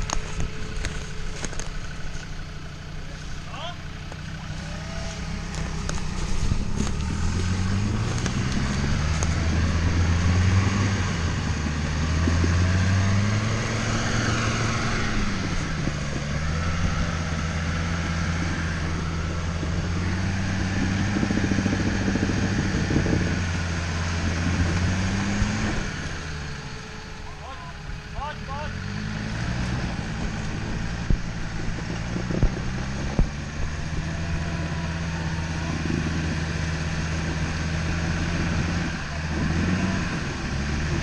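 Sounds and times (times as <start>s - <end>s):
diesel engine under load: 0.0s - 41.0s.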